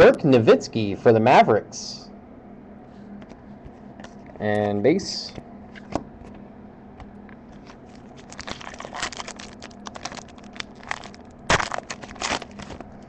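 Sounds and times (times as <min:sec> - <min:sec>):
foil pack crinkling: 0:07.6 - 0:13.0
foil pack tearing: 0:08.0 - 0:13.0.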